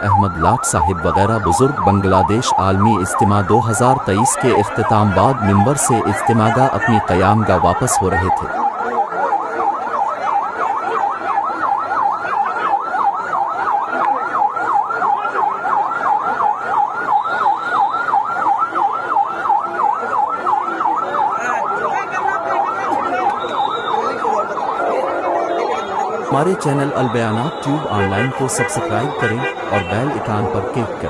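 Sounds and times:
police siren yelping: 0.0 - 31.0.

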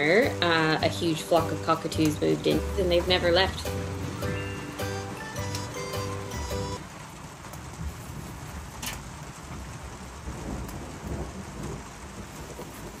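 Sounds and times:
low rumbling: 0.0 - 6.8
outdoor hiss: 0.0 - 13.0.

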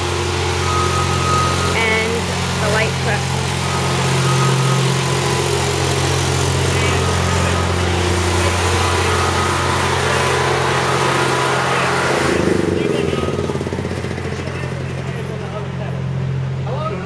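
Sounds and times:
truck engine droning: 0.0 - 17.0.

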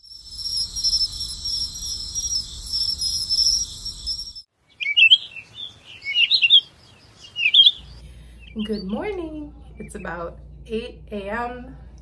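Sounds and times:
crickets chirping: 0.0 - 8.0
birds chirping: 0.0 - 10.3.

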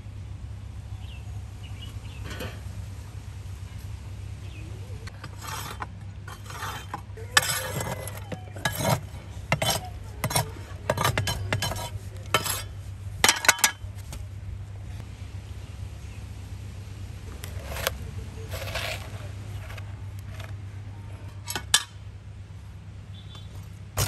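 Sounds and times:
metal utensil scraping a pot: 5.1 - 13.8, 17.4 - 20.6, 21.3 - 22.0.

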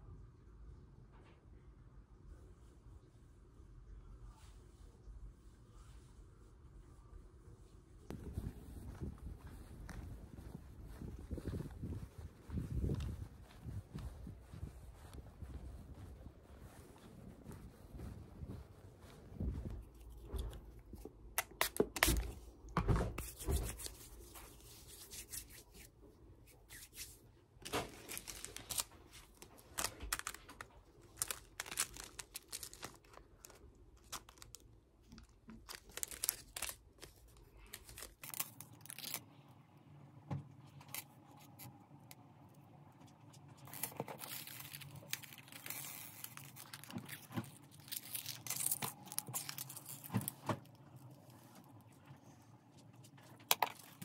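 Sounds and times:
plastic bag crinkling: 27.6 - 39.3, 43.5 - 51.4.

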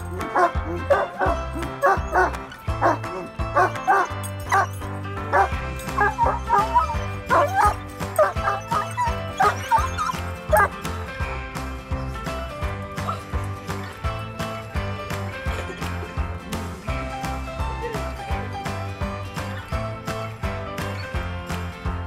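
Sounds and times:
background music: 0.0 - 22.0
dog barking and yelping: 0.2 - 10.8
dog whining: 0.3 - 4.7, 5.4 - 10.7.

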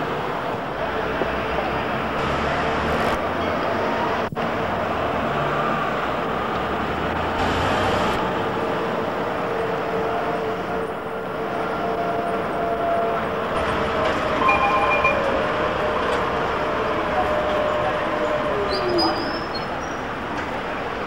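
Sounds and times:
street traffic noise: 0.0 - 21.0
brief higher tone: 14.0 - 16.2.

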